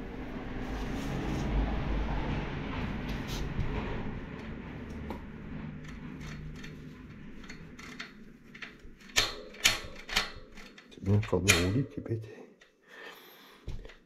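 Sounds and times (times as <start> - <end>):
freehub ticking: 4.4 - 11.4
sharp ratchet clicks: 5.8 - 11.8.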